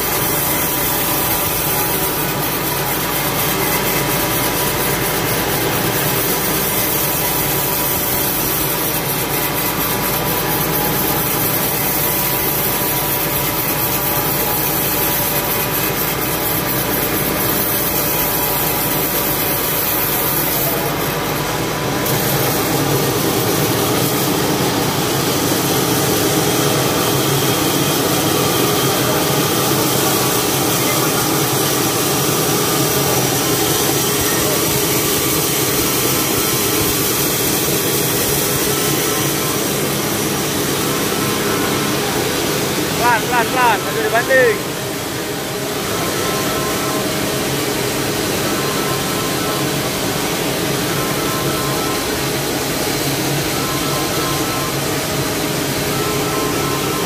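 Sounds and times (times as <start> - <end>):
machine motor running: 0.0 - 54.9.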